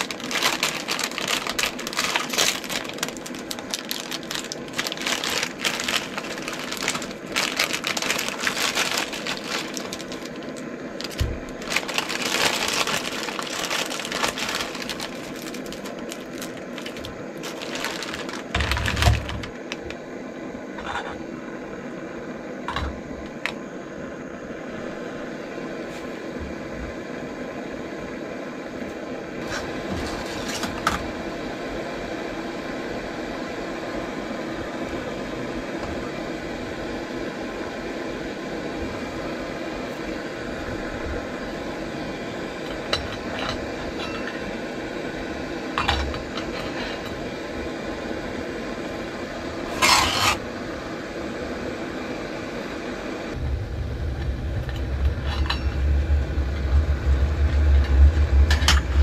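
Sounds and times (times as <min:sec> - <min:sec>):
noodle block cracking in packet: 0:00.0 - 0:19.9
gas stove hissing: 0:00.0 - 0:59.0.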